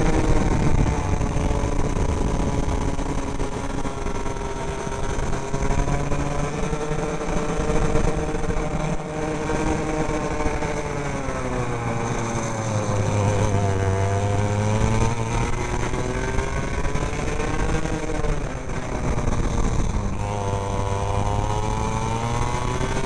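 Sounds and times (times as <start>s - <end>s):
kart engine running: 0.0s - 23.0s.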